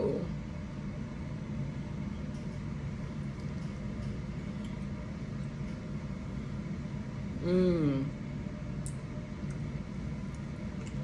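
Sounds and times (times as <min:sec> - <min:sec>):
steady low hum: 0:00.0 - 0:11.0
woman humming mmm: 0:07.4 - 0:08.2.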